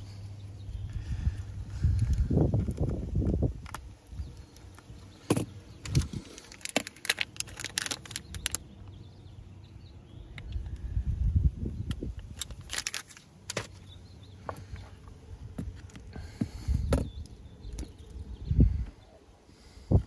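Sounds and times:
low rumbling handling noise: 0.0 - 9.2, 10.2 - 19.0.

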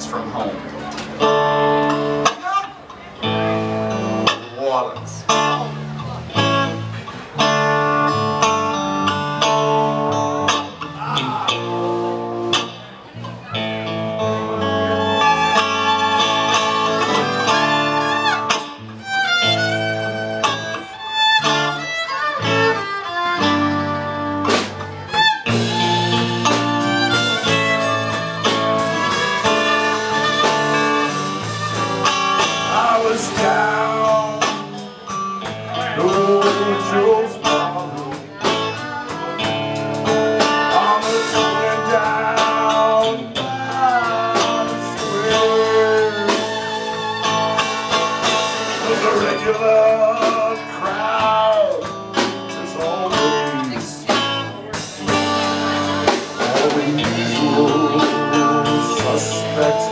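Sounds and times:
live band playing sad song: 0.0 - 59.9
fiddle: 12.8 - 33.0, 44.1 - 50.3
saxophone: 13.4 - 32.8.

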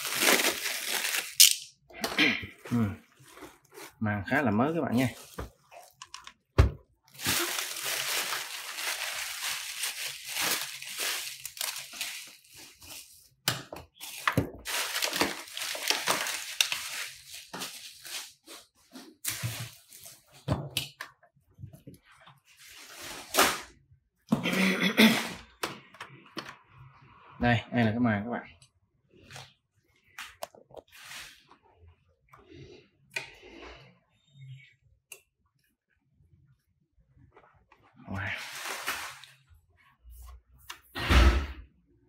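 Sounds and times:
plastic film crinkling: 0.0 - 1.6, 7.1 - 13.3, 14.0 - 20.0, 38.4 - 39.5.

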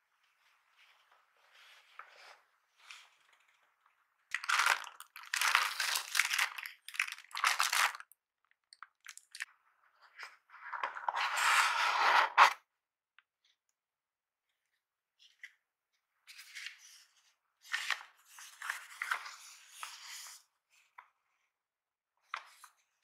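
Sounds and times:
cardboard packaging rustling: 4.3 - 8.0
tissue paper crinkling: 4.3 - 8.0.

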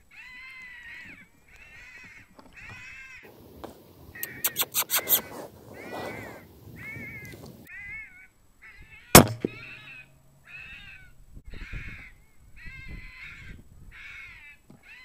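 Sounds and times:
electronic animal caller: 4.2 - 5.3
rifle shot: 9.2 - 9.8.

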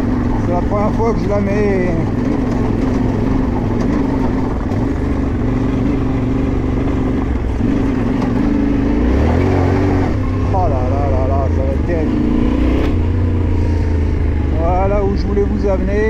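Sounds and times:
motorcycle engine running at low revs: 0.0 - 16.0.

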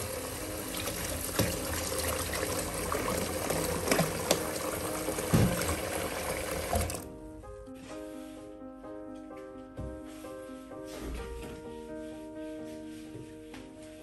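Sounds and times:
tap running into basin: 0.0 - 7.0
background music: 0.0 - 14.0.

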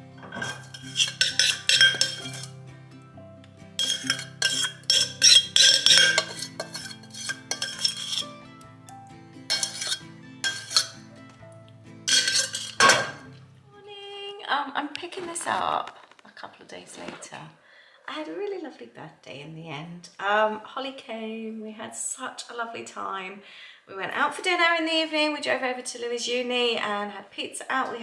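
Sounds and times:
soft background music: 0.0 - 15.8
metal utensils clinking on dishes: 0.2 - 2.5, 3.8 - 8.4, 9.5 - 11.0, 12.1 - 13.3.

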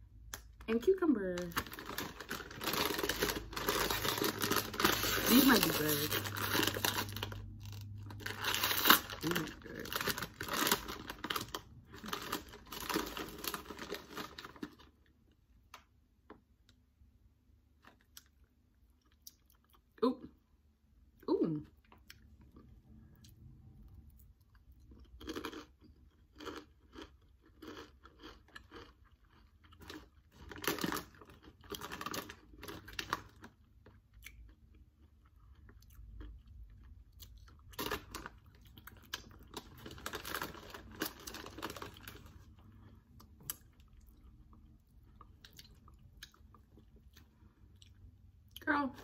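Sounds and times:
person crunching tortilla chips: 1.4 - 15.3, 24.2 - 48.2.

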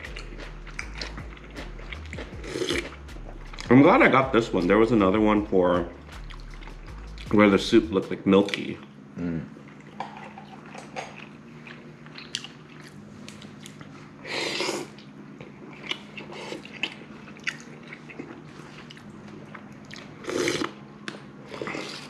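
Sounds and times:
person chewing: 0.0 - 3.7, 6.1 - 7.3, 9.6 - 22.0
loud slurps: 20.2 - 20.8.

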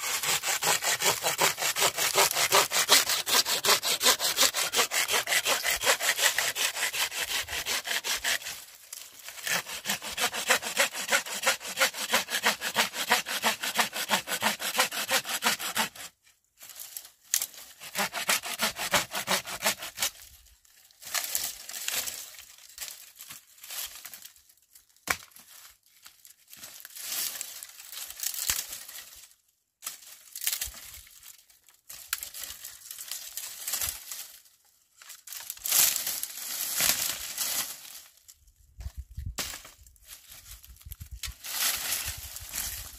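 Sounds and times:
hand saw cutting branch: 0.0 - 16.2, 17.7 - 20.2, 35.3 - 38.0, 41.2 - 42.9
dry branches crackling and rustling: 8.4 - 9.5, 20.1 - 42.9.

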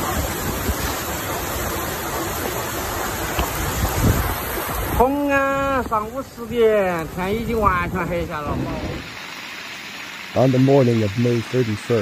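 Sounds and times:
wind buffeting microphone: 0.0 - 9.1
heavy rain pouring: 0.0 - 12.0.

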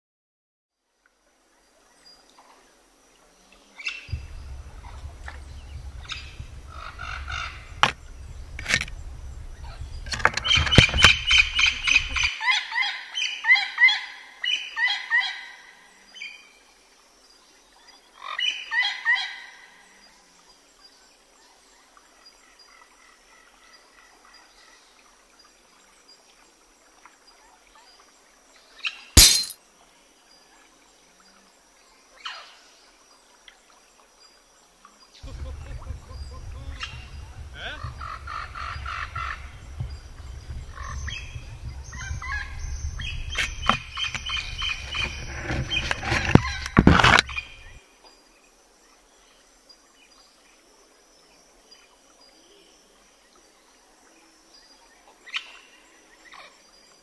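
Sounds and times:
birds chirping: 4.0 - 12.3, 35.2 - 47.8
low rumble: 4.1 - 10.2, 35.2 - 43.1.

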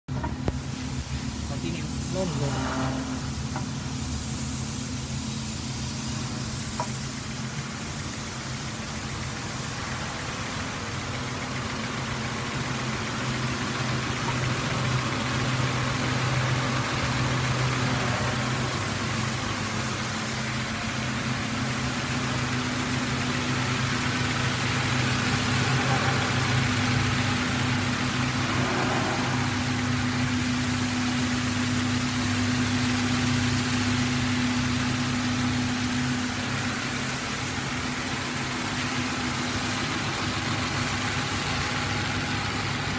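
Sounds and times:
abrasive brush wheels hissing: 0.6 - 10.8, 13.6 - 41.9
electric motors humming: 24.9 - 31.2.

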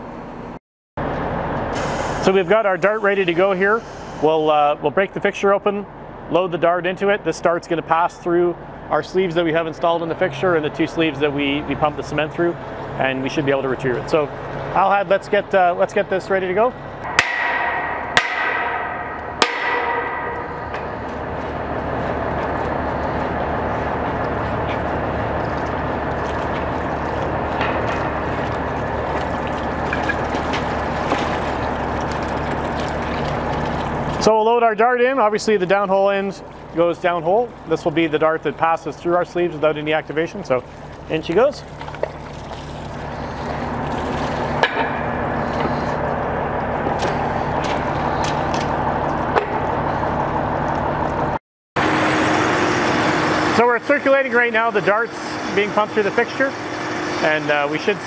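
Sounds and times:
circulating pump humming: 0.0 - 58.0
steady machine noise: 11.6 - 34.3, 42.8 - 58.0
knocks on pipe connection: 17.1 - 21.0
water spilling onto concrete: 25.3 - 34.3, 36.7 - 45.9.

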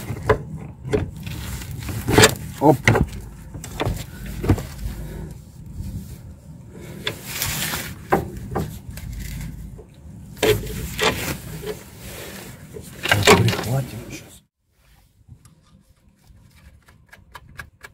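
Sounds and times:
metal parts rubbing: 7.0 - 13.8.

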